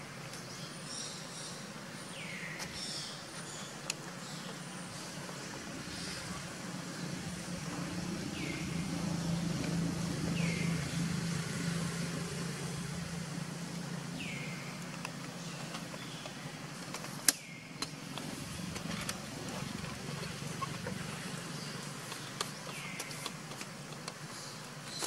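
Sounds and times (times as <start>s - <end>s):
low drone: 4.3s - 15.7s, 17.8s - 22.4s.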